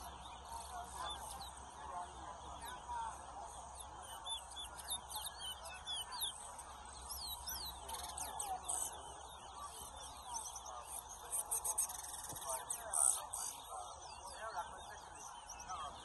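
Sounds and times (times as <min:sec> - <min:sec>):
finches singing whistled notes: 0:00.0 - 0:16.0.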